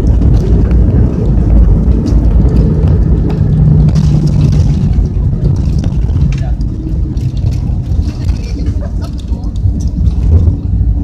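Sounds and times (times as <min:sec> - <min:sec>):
airliner engines and wheels rumbling: 0:00.0 - 0:11.0
steady low hum: 0:00.0 - 0:11.0.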